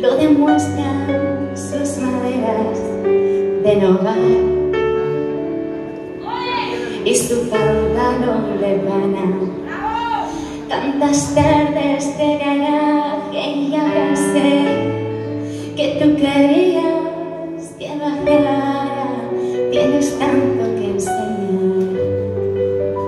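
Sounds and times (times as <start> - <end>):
instrumental accompaniment: 1.0 - 23.0
woman singing pop song: 6.7 - 15.0, 15.6 - 22.1.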